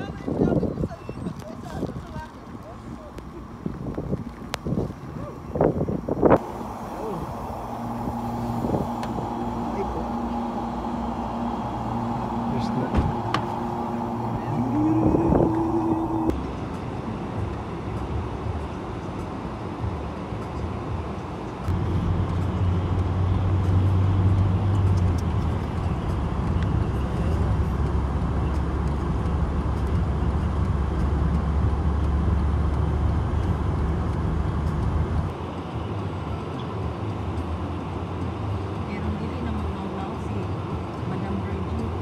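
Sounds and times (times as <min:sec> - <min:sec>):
car engine and road rumble: 0:00.0 - 0:42.0
deep loud rumble: 0:06.2 - 0:16.4.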